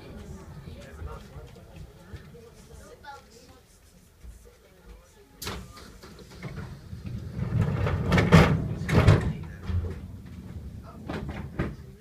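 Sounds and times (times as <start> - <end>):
train doors sliding closed: 5.4 - 12.0.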